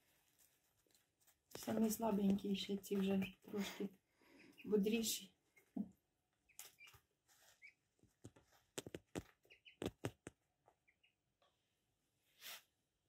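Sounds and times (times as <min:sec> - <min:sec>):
ducklings pecking taps: 0:01.5 - 0:03.6, 0:05.6 - 0:07.0, 0:07.6 - 0:11.1
ducklings peeping: 0:01.6 - 0:05.8, 0:06.4 - 0:07.9, 0:08.8 - 0:11.3.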